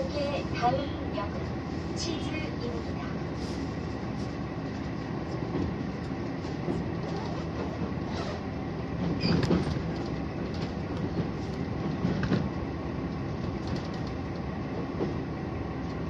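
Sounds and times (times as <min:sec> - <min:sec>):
railcar engine running: 0:00.0 - 0:16.0
wheel and track noise: 0:03.4 - 0:16.0.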